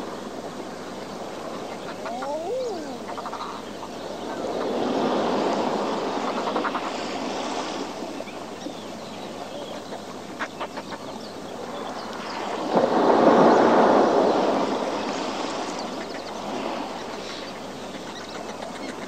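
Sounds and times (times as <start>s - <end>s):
seabirds calling: 0.0s - 12.7s, 13.4s - 19.0s
surf on rocky shore: 0.0s - 19.0s.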